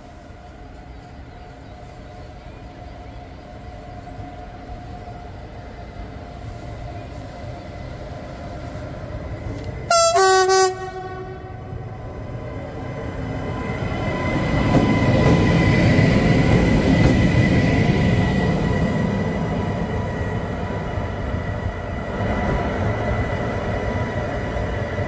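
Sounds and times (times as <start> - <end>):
high-pitched locomotive whine: 0.0 - 25.0
train wheels rumbling on rails: 0.0 - 25.0
two-tone locomotive horn: 9.9 - 11.8.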